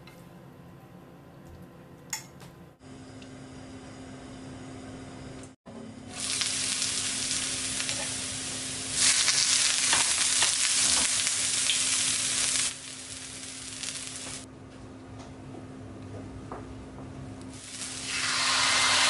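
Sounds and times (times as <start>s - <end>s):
oil sizzling in a frying pan: 6.1s - 14.5s, 17.5s - 19.0s.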